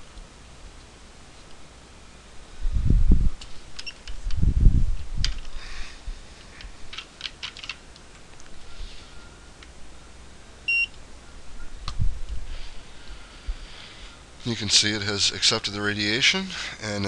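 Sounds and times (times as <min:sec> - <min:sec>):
x-ray unit beep: 0:03.8 - 0:04.0, 0:08.6 - 0:11.8.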